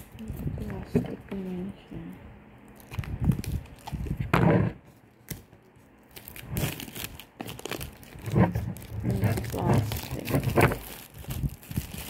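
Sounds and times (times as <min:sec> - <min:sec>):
plastic shrink wrap crinkling: 0:02.7 - 0:04.3, 0:05.2 - 0:12.0.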